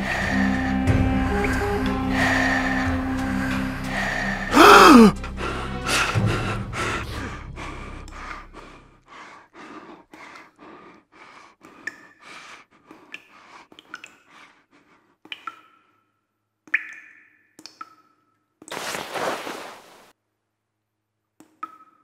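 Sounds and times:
man panting hard: 3.9 - 15.1.

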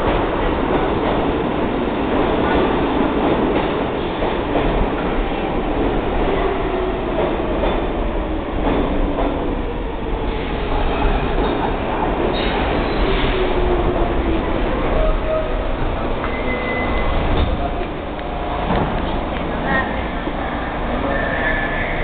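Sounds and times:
subway train rumbling: 0.0 - 22.0.

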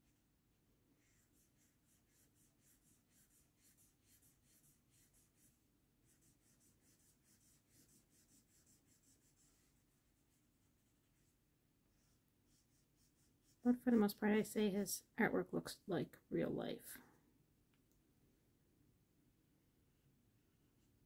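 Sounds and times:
marker scratching on paper: 0.9 - 14.1.

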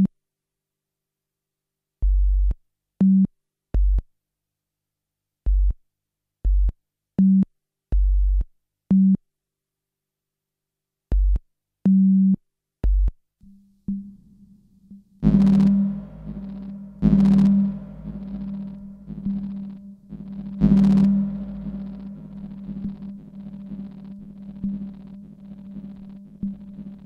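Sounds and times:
low synth drone: 14.0 - 27.0
deep bass thuds: 14.9 - 27.0
synthesized beeping tones: 15.2 - 27.0.

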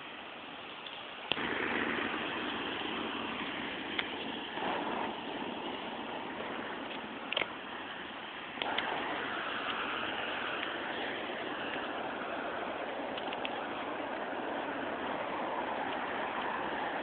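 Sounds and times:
highway traffic hiss: 0.0 - 17.0
sharp clicks: 6.8 - 7.6, 8.5 - 11.9, 12.9 - 14.3.

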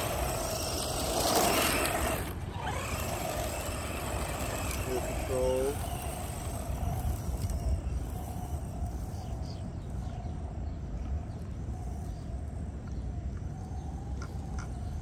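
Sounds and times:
distant rc truck motor whine: 0.0 - 10.1.

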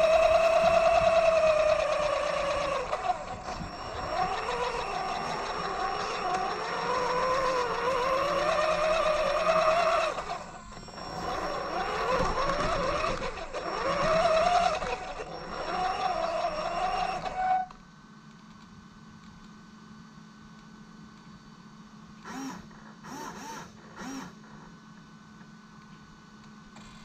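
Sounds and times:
rc truck electric motor whining: 0.0 - 17.8, 22.2 - 24.6.

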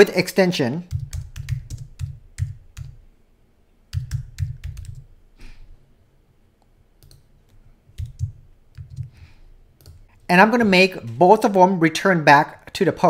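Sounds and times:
typing on a keyboard: 0.9 - 3.0, 3.9 - 5.1, 8.0 - 9.2.

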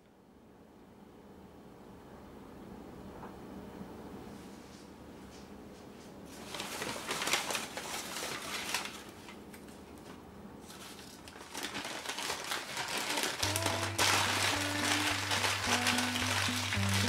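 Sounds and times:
dry crinkling and rustling: 6.3 - 17.0.

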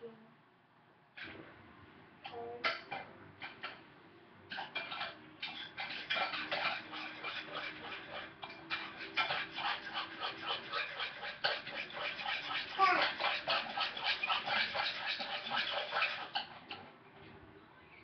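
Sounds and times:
spoon clinking against a pot: 4.5 - 16.8.

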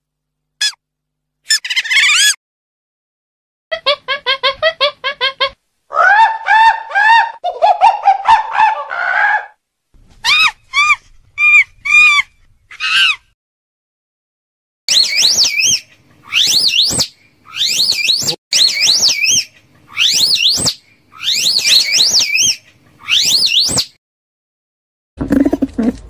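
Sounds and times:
animal chirps and squeals: 1.5 - 2.4, 10.2 - 13.2, 14.9 - 23.9.

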